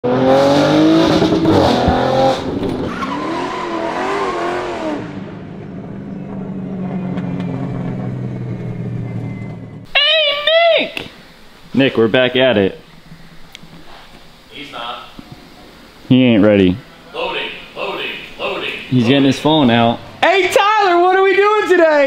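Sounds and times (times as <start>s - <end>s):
car engine revving and idling: 0.0s - 9.9s.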